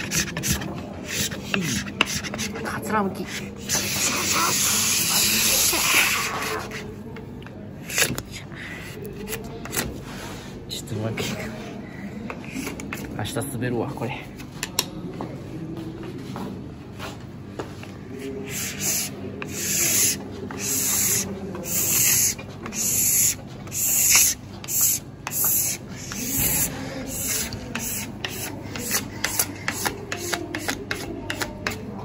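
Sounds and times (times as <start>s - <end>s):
wax scraper scraping ski base: 0.0s - 6.9s, 18.5s - 31.9s.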